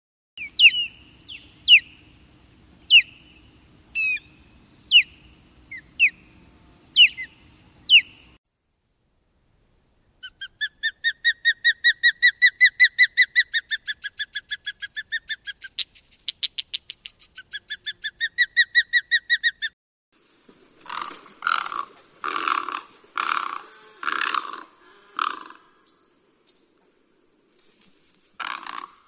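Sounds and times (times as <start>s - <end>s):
osprey whistled calls: 0.4s - 2.1s, 2.9s - 3.4s, 4.0s - 6.2s, 7.0s - 8.4s.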